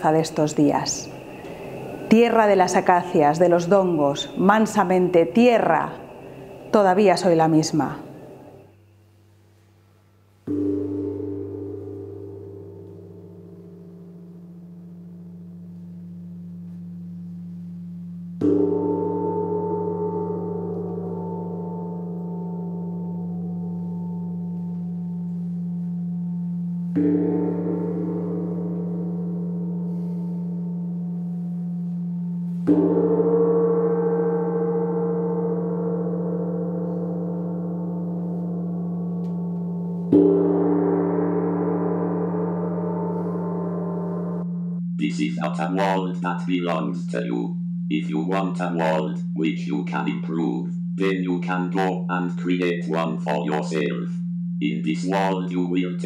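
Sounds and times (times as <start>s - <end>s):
low hum: 0.0s - 56.0s
steady low drone: 0.8s - 8.8s, 9.8s - 56.0s
metal gong struck and ringing: 10.5s - 44.9s.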